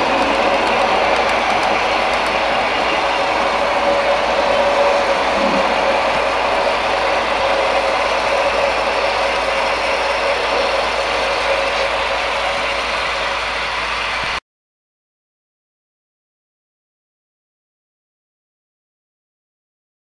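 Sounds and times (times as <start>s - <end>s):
model train rumbling on track: 0.0s - 14.4s.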